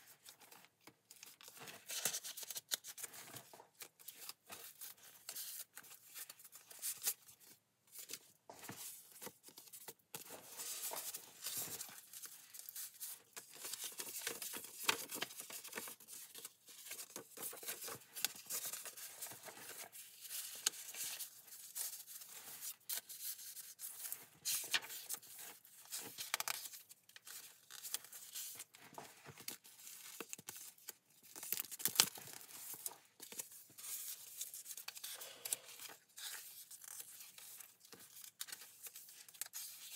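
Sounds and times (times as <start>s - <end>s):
paper rustling and crinkling: 0.0s - 39.9s.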